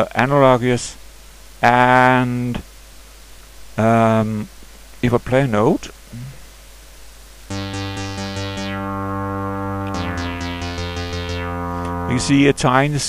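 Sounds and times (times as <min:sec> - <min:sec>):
synth held note pulsing: 0:07.5 - 0:13.0.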